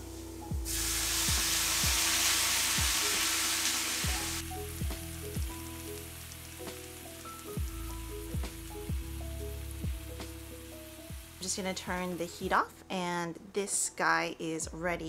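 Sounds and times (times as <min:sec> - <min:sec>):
background music with steady beat: 0:00.0 - 0:13.1
liquid sizzling in a hot skillet: 0:00.6 - 0:12.5.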